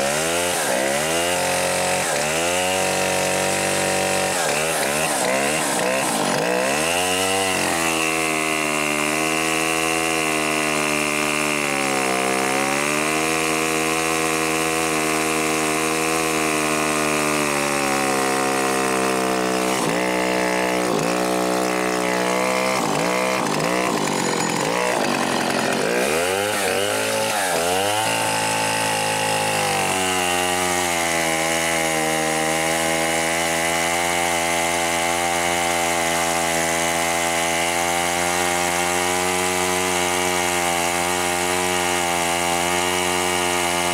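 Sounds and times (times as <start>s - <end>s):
chainsaw cutting a log: 0.0s - 43.9s.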